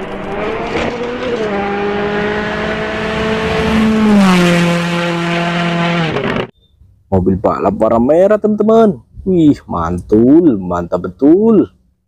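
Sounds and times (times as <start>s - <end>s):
rally car engine passing at high revs: 0.0s - 6.5s.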